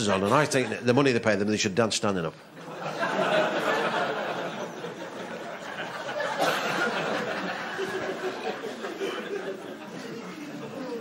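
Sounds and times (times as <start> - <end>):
audience laughing: 2.6 - 11.0.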